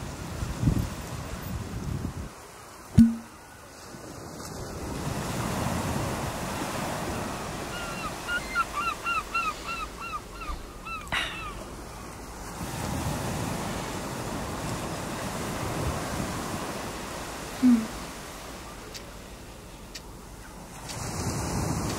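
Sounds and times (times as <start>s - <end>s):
surf washing on beach: 0.0s - 21.9s
wind: 0.0s - 21.9s.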